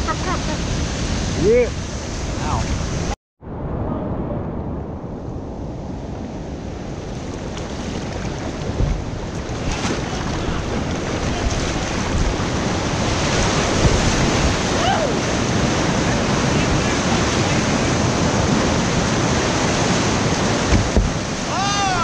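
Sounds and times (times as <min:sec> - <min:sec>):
whitewater rushing over rocks: 0:07.9 - 0:22.0.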